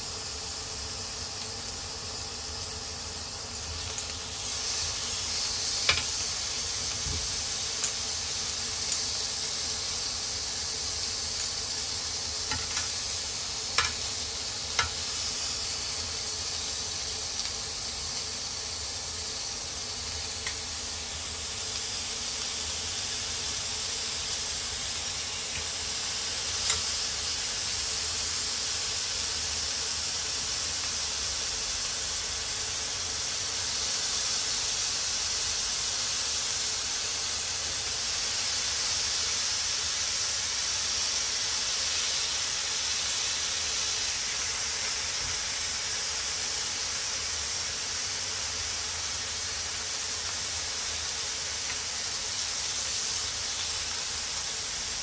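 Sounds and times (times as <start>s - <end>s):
bacon sizzling in a pan: 0.0s - 55.0s
tongs clicking against pan: 5.8s - 6.1s, 12.5s - 13.0s, 13.8s - 14.0s, 14.8s - 15.0s.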